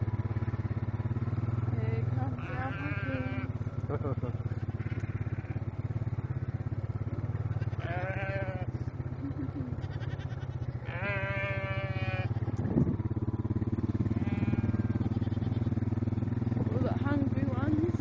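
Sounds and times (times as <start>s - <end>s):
quad bike engine running: 0.0s - 18.0s
alpacas bleating: 2.3s - 3.6s, 4.4s - 6.0s, 7.3s - 12.6s, 14.0s - 15.8s.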